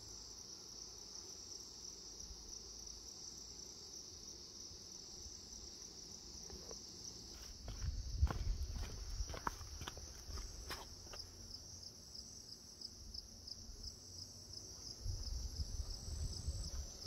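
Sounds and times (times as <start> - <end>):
insects droning: 0.0 - 17.0
wind rumble on microphone: 7.8 - 9.6, 14.9 - 17.0.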